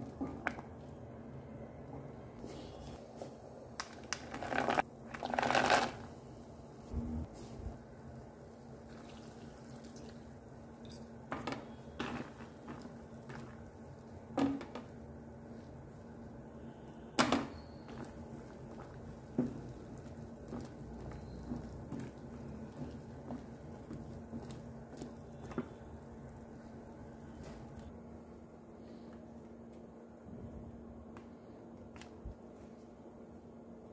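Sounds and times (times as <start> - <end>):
water bubbling in a pot: 8.5 - 11.1.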